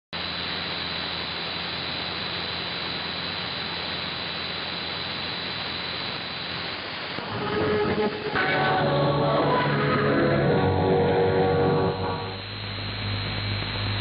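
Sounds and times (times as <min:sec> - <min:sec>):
radio static hiss: 0:00.2 - 0:14.0
low hum: 0:06.0 - 0:14.0.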